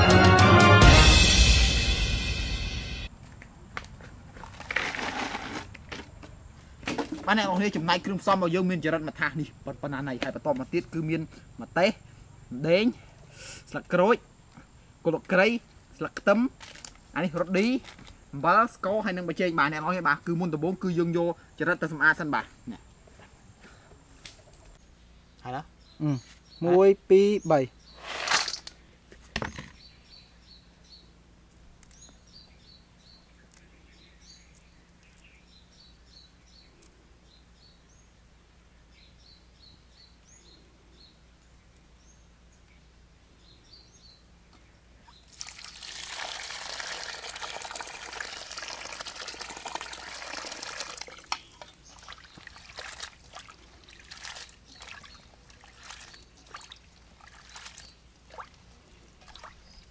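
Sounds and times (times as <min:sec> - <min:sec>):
water splashing and sloshing: 0:45.2 - 0:59.9
water pouring into metal bowl: 0:45.3 - 0:51.4, 0:52.0 - 0:57.8.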